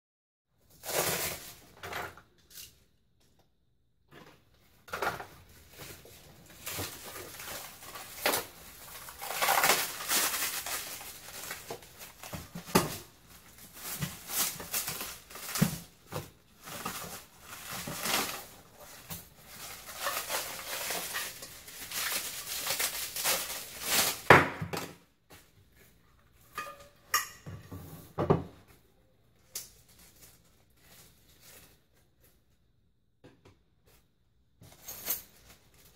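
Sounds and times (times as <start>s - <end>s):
plastic packaging rustling: 0.7s - 2.8s, 4.9s - 24.9s, 29.4s - 32.4s, 34.6s - 35.9s.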